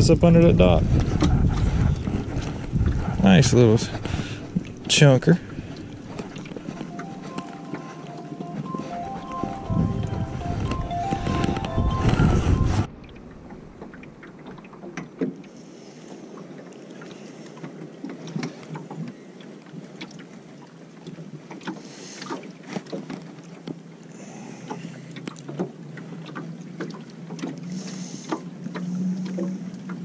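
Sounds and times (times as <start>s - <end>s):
waves lapping against boat hull: 0.0s - 30.0s
low steady hum: 0.8s - 15.0s.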